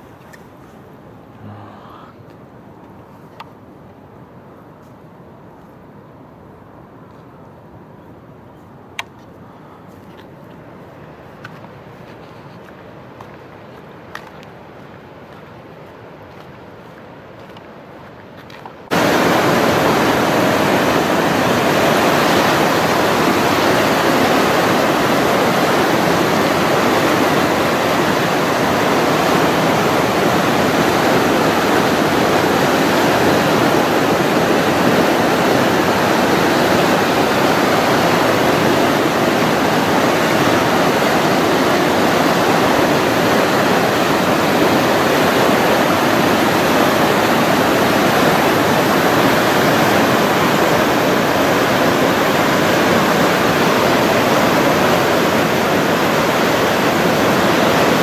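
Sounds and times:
white water rushing: 18.7 - 58.0.

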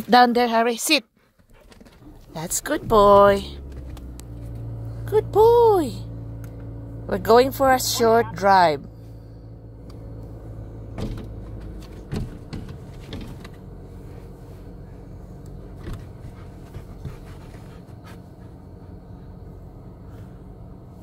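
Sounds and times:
car engine hum: 1.2 - 21.0
dog panting: 16.2 - 19.1.

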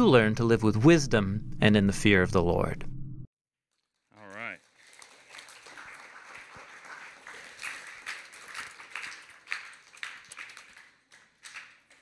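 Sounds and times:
audience applause: 4.2 - 12.0.

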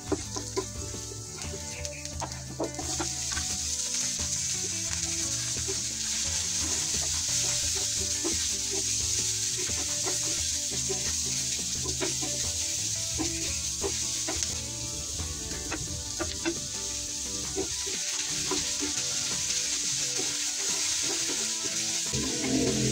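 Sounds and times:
meat sizzling in a pan: 0.0 - 22.9
utensil clicking in pan: 13.2 - 14.7.

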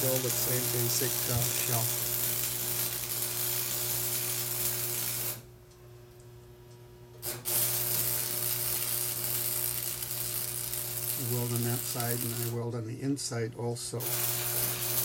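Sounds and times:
arc welding crackling: 0.0 - 5.8, 7.1 - 15.0
low steady hum: 4.8 - 7.2, 9.9 - 14.1.

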